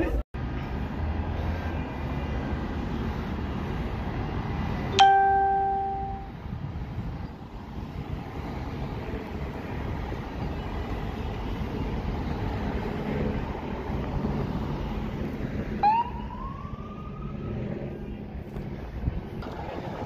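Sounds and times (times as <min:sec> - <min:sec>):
low traffic rumble: 0:00.0 - 0:20.0
cars driving past: 0:00.4 - 0:20.0
police siren wail: 0:15.8 - 0:17.8.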